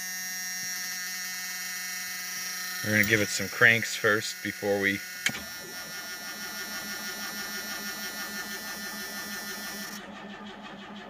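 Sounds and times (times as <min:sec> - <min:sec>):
starter motor cranking engine: 0:02.8 - 0:11.0.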